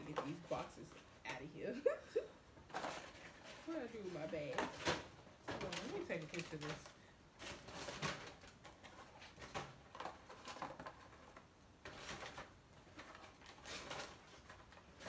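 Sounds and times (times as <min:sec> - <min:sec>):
cardboard boxes rustling: 0:02.6 - 0:15.0
paper bag being opened: 0:02.7 - 0:15.0.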